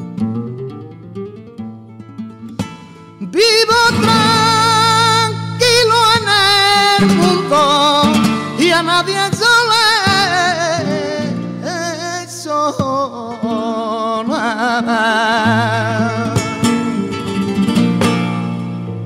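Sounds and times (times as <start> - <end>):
flamenco guitar: 0.0 - 19.0
man singing: 3.2 - 17.5.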